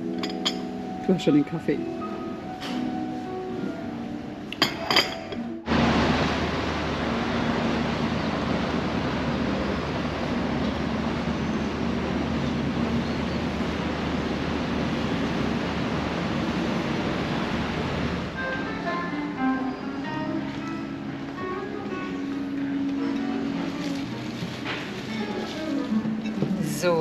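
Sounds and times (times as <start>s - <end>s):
river rushing: 5.7s - 27.0s
plucked string music: 18.4s - 27.0s.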